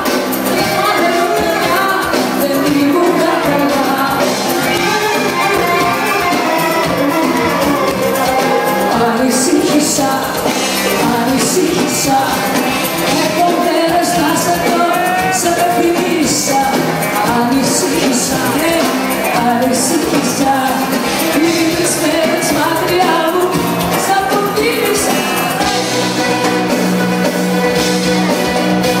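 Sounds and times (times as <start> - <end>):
band with steady drum beat: 0.0 - 29.0
woman singing into a microphone: 0.6 - 5.0, 8.8 - 25.5.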